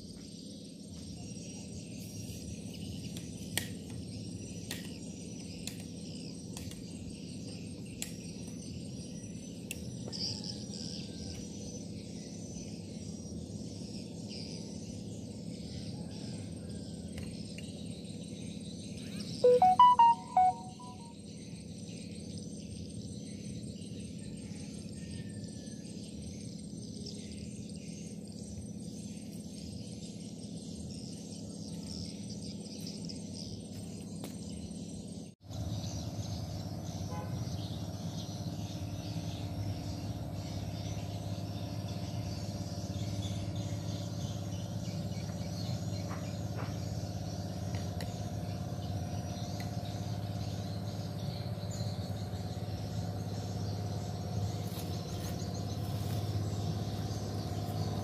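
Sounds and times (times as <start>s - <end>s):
insects chirping: 0.0s - 58.0s
steady low hum: 0.0s - 58.0s
birds chirping: 0.2s - 21.1s, 28.7s - 58.0s.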